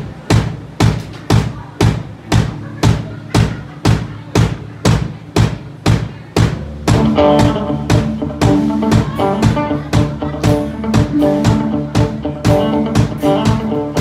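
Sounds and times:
drum kit beat: 0:00.0 - 0:14.0
country band playing: 0:06.6 - 0:14.0.

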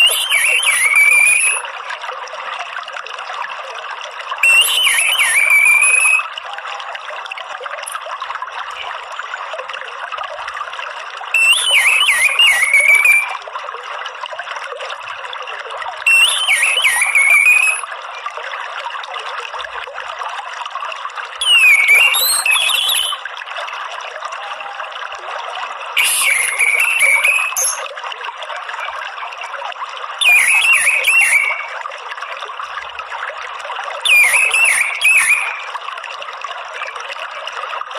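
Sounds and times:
thrush chattering call: 0:00.0 - 0:01.6, 0:04.4 - 0:06.3, 0:11.4 - 0:13.4, 0:16.1 - 0:17.8, 0:21.4 - 0:23.2, 0:26.0 - 0:27.9, 0:30.2 - 0:31.8, 0:34.1 - 0:35.7
running water: 0:00.0 - 0:37.9.

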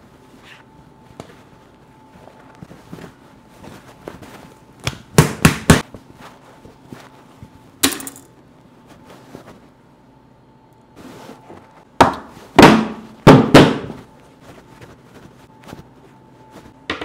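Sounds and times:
dough handling noise: 0:00.0 - 0:10.2, 0:10.8 - 0:17.0
dough thumping on a counter: 0:04.8 - 0:05.9, 0:12.0 - 0:14.1.

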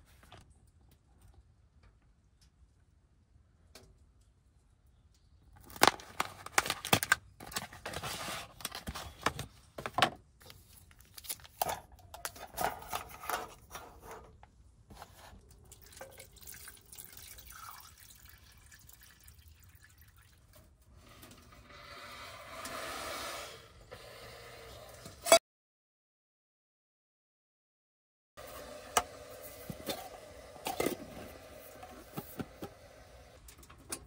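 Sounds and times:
handling sounds: 0:05.6 - 0:15.3
water splashing and dripping: 0:15.3 - 0:20.7.

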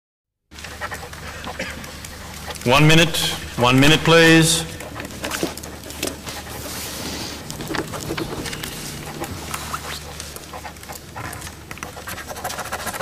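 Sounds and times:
pens scratching on paper: 0:00.6 - 0:13.0
small clicks and scrapes: 0:04.7 - 0:13.0.

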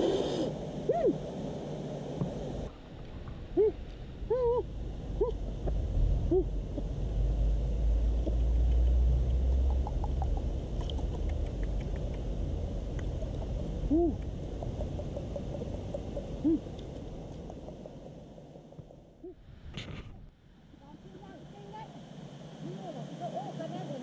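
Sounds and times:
steady low rumble: 0:00.5 - 0:24.0
man hooting with pursed lips: 0:13.9 - 0:14.3.

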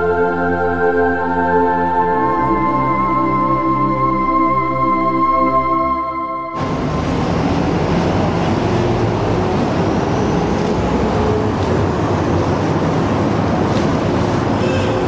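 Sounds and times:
shopping arcade ambient rumble: 0:05.2 - 0:15.0.

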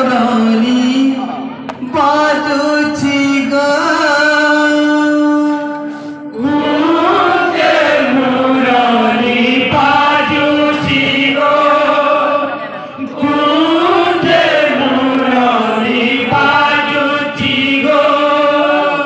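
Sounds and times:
men singing devotional chant: 0:06.4 - 0:19.0.

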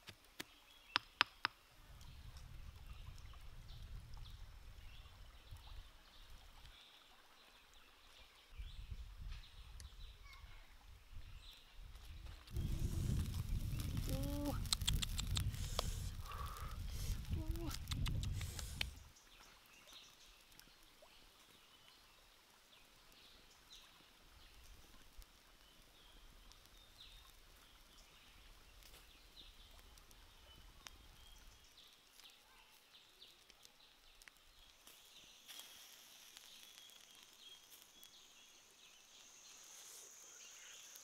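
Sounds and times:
faint clicks and crackles: 0:11.9 - 0:19.1, 0:24.3 - 0:39.8
high steady insect buzz: 0:35.2 - 0:41.0.

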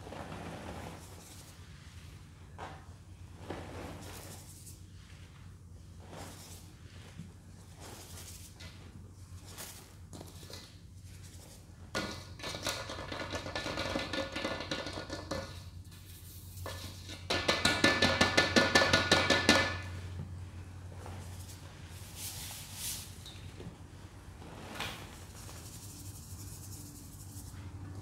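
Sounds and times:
hands rubbing powder: 0:03.4 - 0:17.3, 0:20.6 - 0:23.2, 0:24.0 - 0:27.9.

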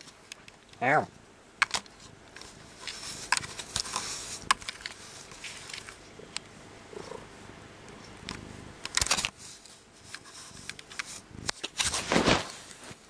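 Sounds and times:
camera handling rustling and clicks: 0:01.6 - 0:06.0, 0:08.8 - 0:09.4
faint low rumble from cat: 0:04.1 - 0:08.8.

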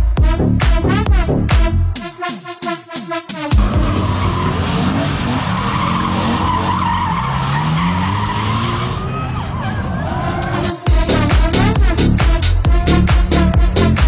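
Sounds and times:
car engine revving: 0:03.5 - 0:14.0
tyres squealing: 0:03.6 - 0:10.9.

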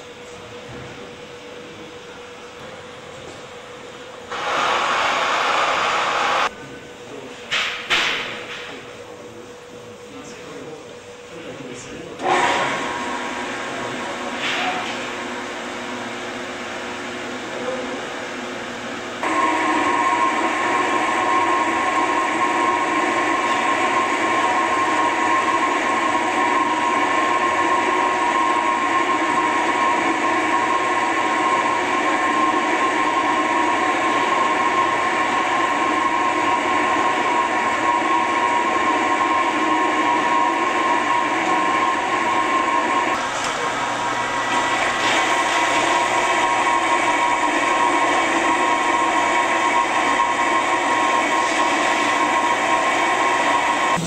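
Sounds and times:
soymilk machine grinding: 0:12.2 - 0:54.0.

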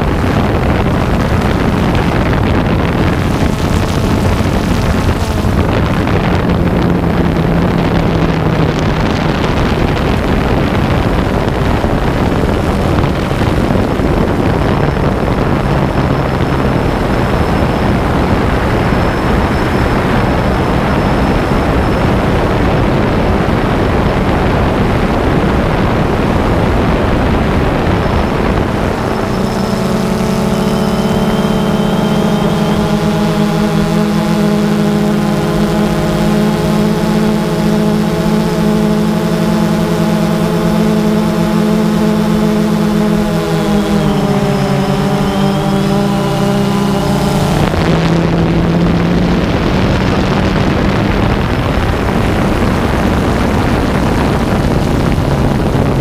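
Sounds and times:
drone propellers whirring: 0:00.0 - 0:56.0
steady pitched tones: 0:00.0 - 0:56.0.

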